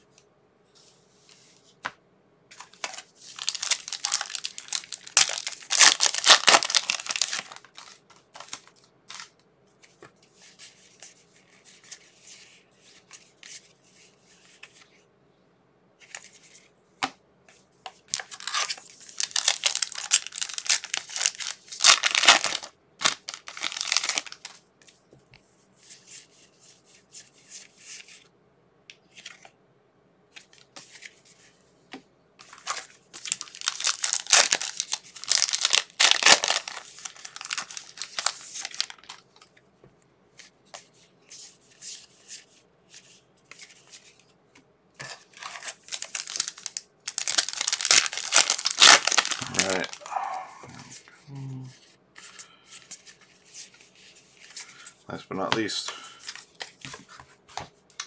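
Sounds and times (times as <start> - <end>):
wrappers tearing and crinkling: 2.8 - 9.2, 18.1 - 24.5, 32.4 - 39.2, 45.4 - 50.5
card handling: 45.0 - 50.8.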